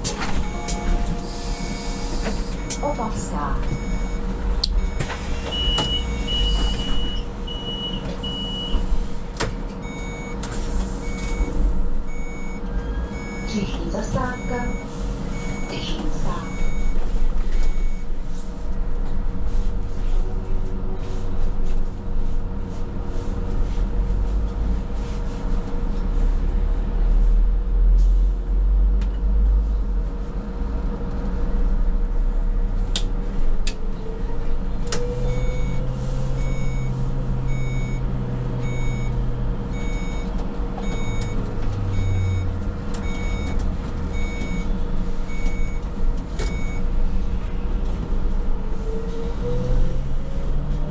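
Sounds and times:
trolleybus ride rumble: 0:00.0 - 0:50.9
electronic beeps: 0:00.4 - 0:04.2.

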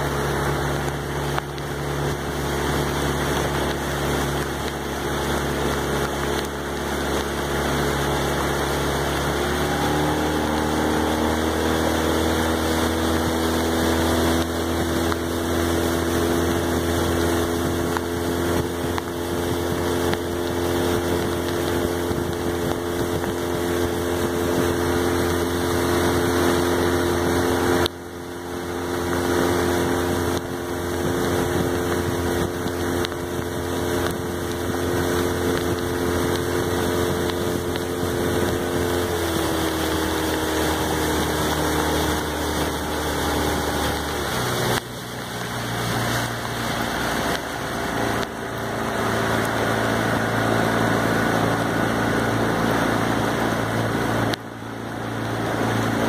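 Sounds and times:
outboard motor running: 0:00.0 - 0:56.0
rain: 0:00.0 - 0:56.0
wind noise on microphone: 0:00.0 - 0:56.0.

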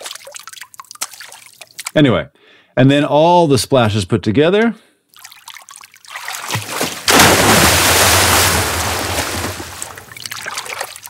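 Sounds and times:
small water splashes: 0:00.0 - 0:02.0, 0:05.1 - 0:11.0
big loud splash: 0:06.6 - 0:10.1.

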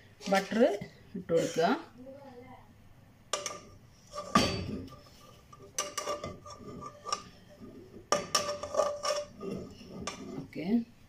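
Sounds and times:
spoon clinking on a pot: 0:03.3 - 0:04.8, 0:05.8 - 0:07.4, 0:08.1 - 0:09.3
spoon scraping a pot: 0:03.4 - 0:10.8.

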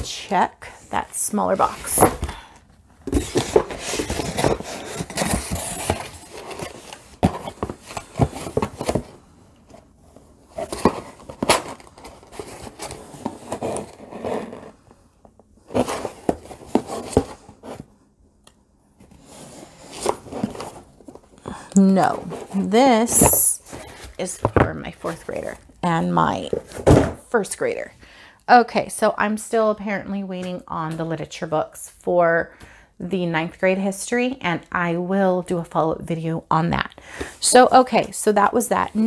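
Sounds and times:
box being unpacked: 0:03.0 - 0:14.8, 0:15.7 - 0:17.9, 0:19.1 - 0:25.6.

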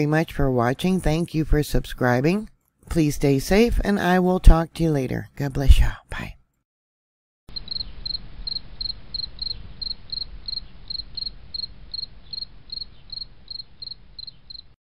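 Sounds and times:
cricket chirping: 0:07.5 - 0:14.8.

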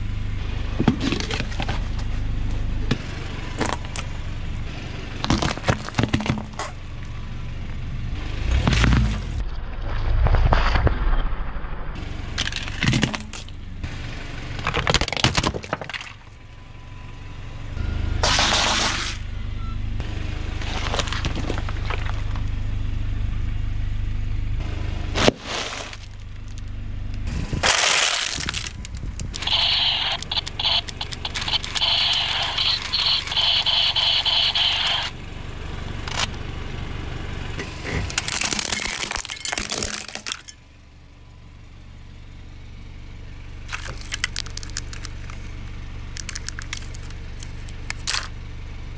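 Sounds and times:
car low rumble: 0:00.0 - 0:48.9
tyre crushing objects: 0:05.2 - 0:06.7, 0:25.2 - 0:26.6, 0:27.6 - 0:29.1
rapidly pulsing high tone: 0:29.4 - 0:35.2.

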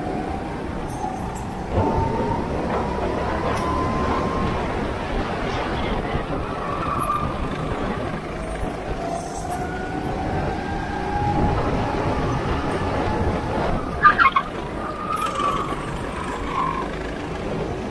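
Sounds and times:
go-kart engines running: 0:00.0 - 0:17.9.

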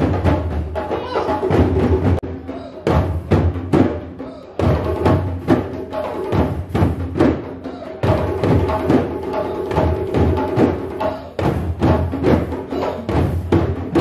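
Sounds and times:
djembe drums played by hand: 0:00.0 - 0:14.0.

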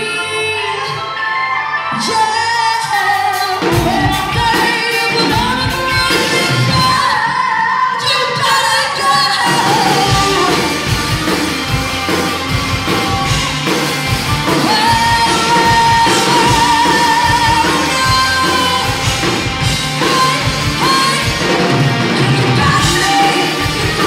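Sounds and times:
woman singing: 0:00.0 - 0:11.0, 0:14.4 - 0:24.0
live pop-rock band: 0:00.0 - 0:24.0.

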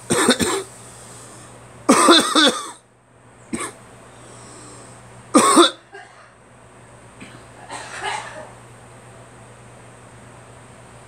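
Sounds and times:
person coughing: 0:00.1 - 0:00.7, 0:01.9 - 0:02.8, 0:03.6 - 0:03.8, 0:05.4 - 0:06.3, 0:07.2 - 0:08.6.

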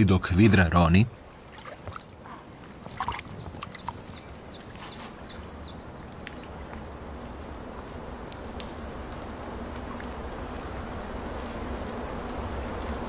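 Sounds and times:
water splashing: 0:01.4 - 0:04.3
water dripping: 0:01.4 - 0:04.7.

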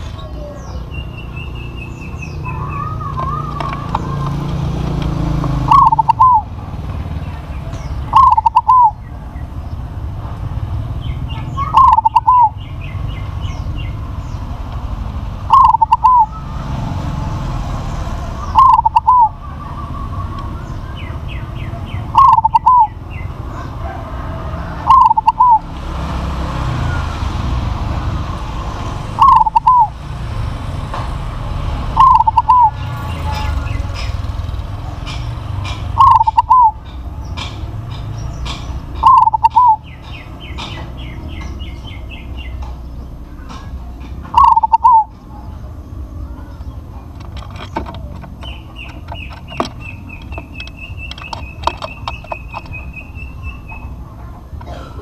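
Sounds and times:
small birds chirping: 0:00.0 - 0:55.0
dove cooing: 0:05.6 - 0:06.6, 0:07.9 - 0:09.0, 0:11.6 - 0:12.6, 0:15.4 - 0:16.6, 0:18.4 - 0:20.6, 0:21.7 - 0:25.7, 0:29.1 - 0:30.0, 0:31.9 - 0:33.5, 0:36.0 - 0:36.9, 0:39.0 - 0:39.9, 0:44.2 - 0:45.6.

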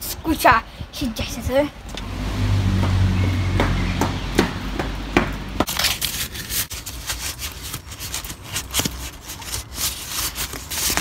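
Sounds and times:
paper rustling and crinkling: 0:05.6 - 0:11.0.

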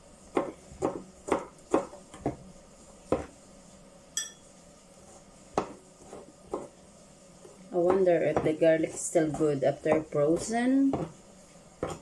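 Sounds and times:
knife chopping on cutting board: 0:00.3 - 0:02.5, 0:03.1 - 0:03.3, 0:05.5 - 0:06.8, 0:07.8 - 0:11.2, 0:11.8 - 0:12.0
ringing metallic clink: 0:04.2 - 0:04.4.

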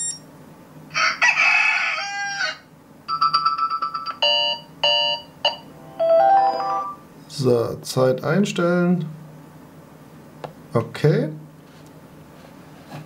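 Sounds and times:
fast short beeps: 0:00.0 - 0:00.3
recorded rooster crow: 0:00.9 - 0:02.7.

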